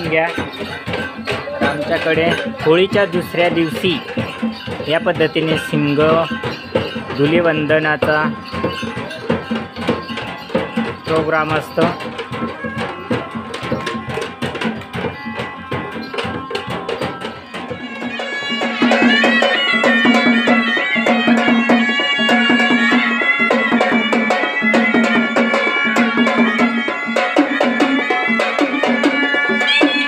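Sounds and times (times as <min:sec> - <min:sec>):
fast hand drum beats: 0:00.0 - 0:30.0
reedy pipe melody: 0:00.0 - 0:30.0.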